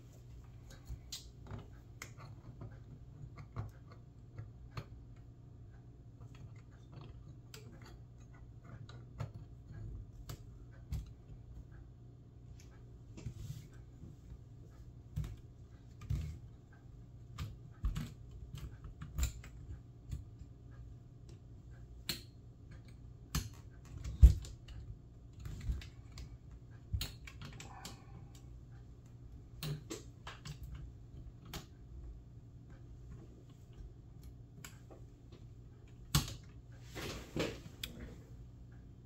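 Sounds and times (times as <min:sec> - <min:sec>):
clicks and knocks of metal and plastic parts: 0:00.6 - 0:05.3, 0:06.2 - 0:11.7, 0:15.1 - 0:28.8, 0:29.5 - 0:32.1, 0:32.7 - 0:36.7.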